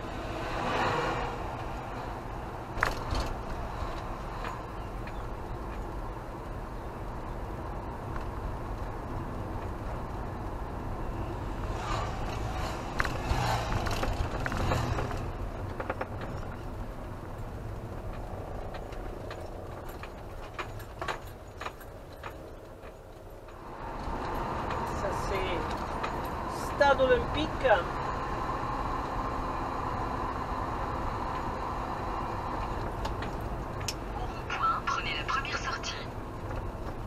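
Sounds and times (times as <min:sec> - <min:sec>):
engine and road rumble: 0:00.0 - 0:37.0
rattling and clicking: 0:12.0 - 0:26.4.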